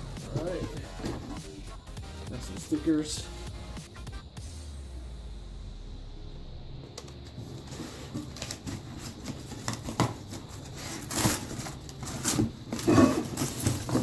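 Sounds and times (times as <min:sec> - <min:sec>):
cardboard crinkling and scraping: 0:07.3 - 0:14.0.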